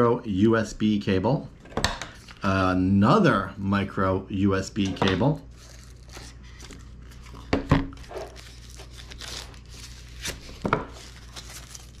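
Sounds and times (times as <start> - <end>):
cardboard packaging handled: 5.5 - 12.0
plastic wrapping crinkling: 5.5 - 12.0.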